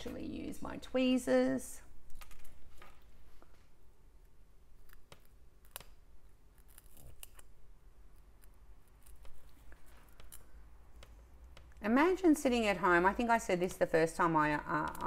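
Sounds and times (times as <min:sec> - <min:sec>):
tweezers clicking and rustling: 0:04.8 - 0:11.8, 0:14.6 - 0:15.0.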